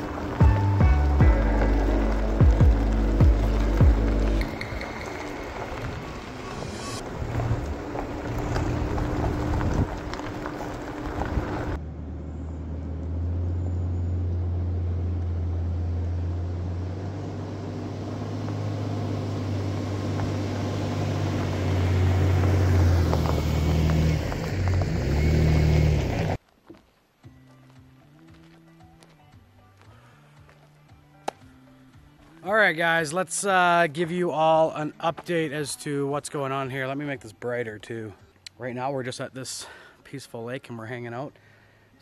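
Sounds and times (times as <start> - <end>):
pickup truck engine humming: 0.0 - 26.4
tyres on gravel road: 0.0 - 42.0.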